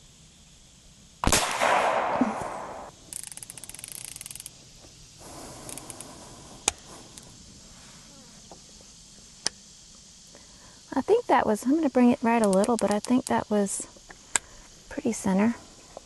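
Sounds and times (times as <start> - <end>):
air rifle shot: 1.2 - 3.0
rapid ticking rattle: 3.0 - 4.7.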